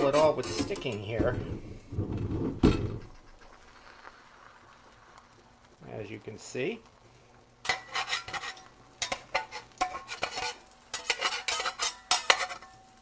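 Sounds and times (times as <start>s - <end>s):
metal spatula scraping skillet: 0.0s - 1.1s, 7.6s - 12.9s.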